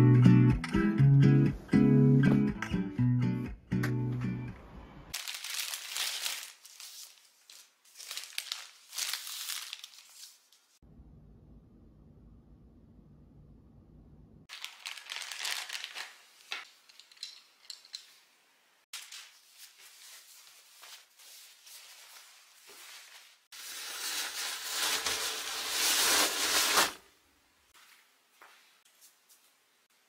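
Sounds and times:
plastic packaging rustling: 5.2s - 10.8s, 14.5s - 18.0s, 19.0s - 27.0s.

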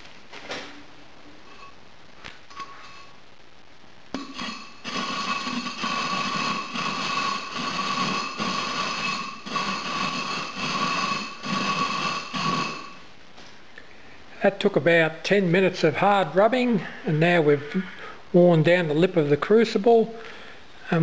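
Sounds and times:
crucible scraping on concrete: 4.2s - 13.0s.

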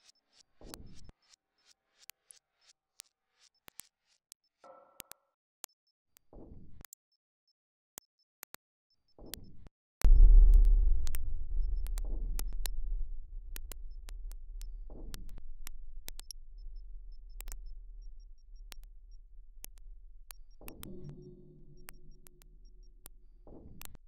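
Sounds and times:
sub-bass boom: 10.0s - 23.5s
sharp clicks: 19.6s - 22.4s
faint high ticks: 19.6s - 24.0s.

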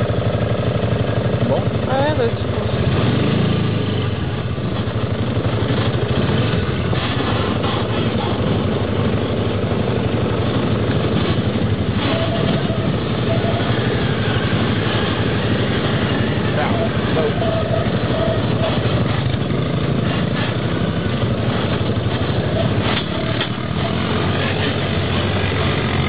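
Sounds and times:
three-wheeler engine running: 0.0s - 26.0s.

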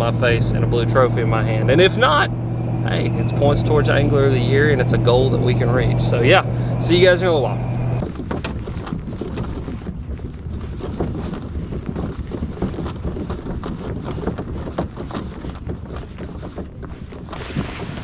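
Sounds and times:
wind noise on microphone: 0.0s - 18.0s
kayak hull scraping on concrete: 16.0s - 18.0s.

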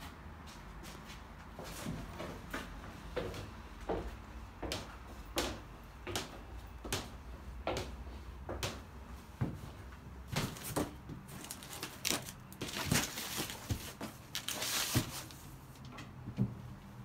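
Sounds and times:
rustling of bags and boxes: 9.4s - 15.8s.

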